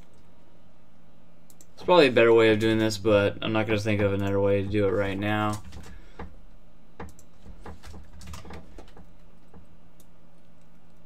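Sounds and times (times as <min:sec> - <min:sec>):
faint low hum: 0:00.0 - 0:11.0
computer keyboard typing: 0:07.0 - 0:09.6.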